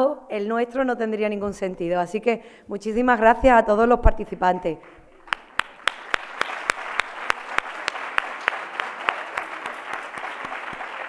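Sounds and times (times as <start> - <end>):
close sharp hand claps: 4.9 - 11.0
audience applauding: 5.2 - 11.0.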